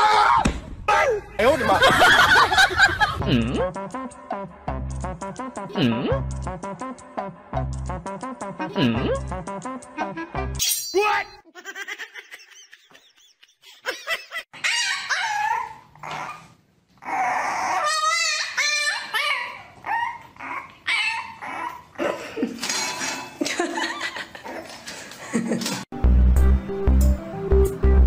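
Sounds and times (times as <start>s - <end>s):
puppy whining and yelping: 14.6s - 22.0s.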